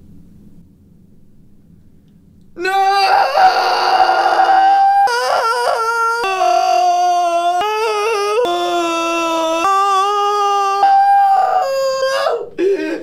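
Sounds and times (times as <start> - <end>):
man wailing: 2.6 - 13.0.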